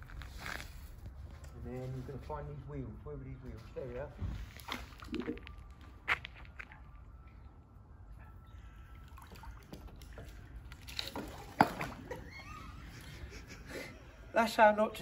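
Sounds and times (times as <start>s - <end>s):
water splashing and dripping: 4.2s - 7.0s, 8.7s - 13.0s.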